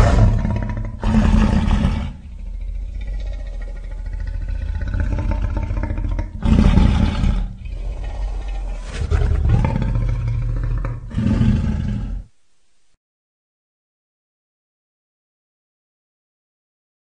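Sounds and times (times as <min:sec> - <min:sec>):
creature growling: 0:00.0 - 0:12.3
creature roars: 0:00.0 - 0:12.3.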